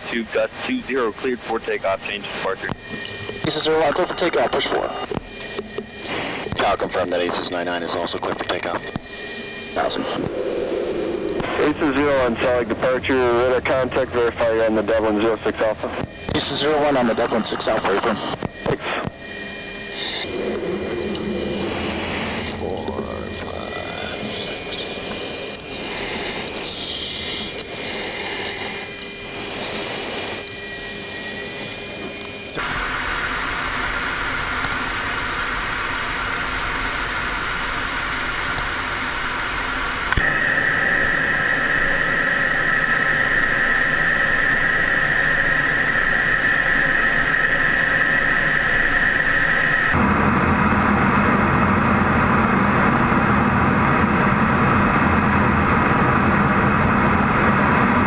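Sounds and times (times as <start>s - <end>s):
jet engine and airflow noise: 0.0s - 58.0s
steady high whine: 0.0s - 58.0s.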